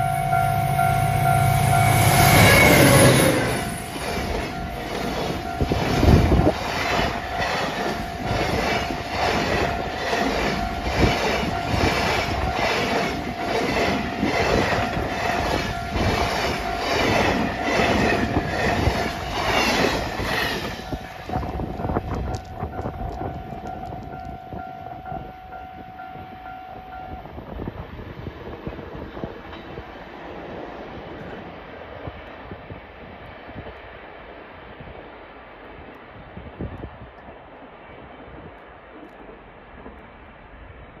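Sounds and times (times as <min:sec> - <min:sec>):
level crossing alarm tone: 0:00.0 - 0:06.2
diesel locomotive engine: 0:00.0 - 0:41.0
train wheels clacking on rail joints: 0:02.4 - 0:25.2.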